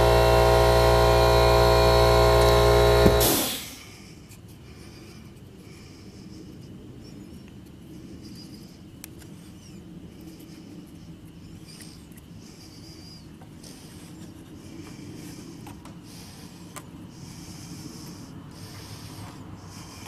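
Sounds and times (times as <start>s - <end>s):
machine humming loudly: 0.0s - 3.9s.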